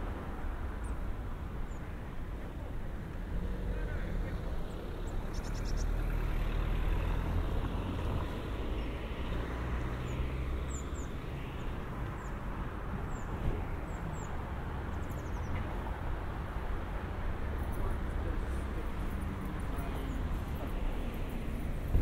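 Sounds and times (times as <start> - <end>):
low rumble of traffic: 0.0 - 22.0
car driving past: 5.5 - 11.1.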